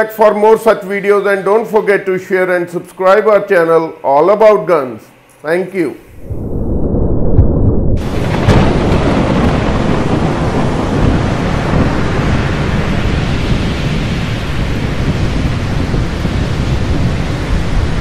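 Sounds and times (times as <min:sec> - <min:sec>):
thunder crack: 0:06.2 - 0:18.0
rain: 0:08.0 - 0:18.0.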